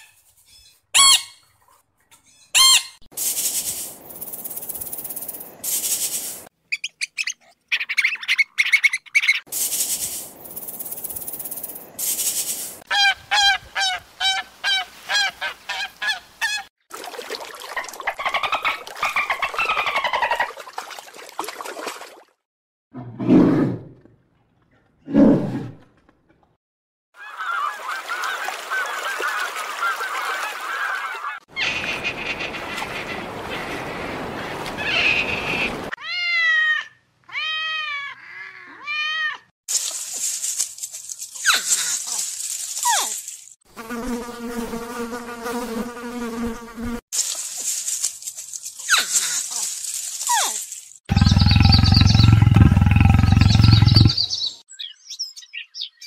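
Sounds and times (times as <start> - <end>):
bear grunts: 51.1 - 54.3.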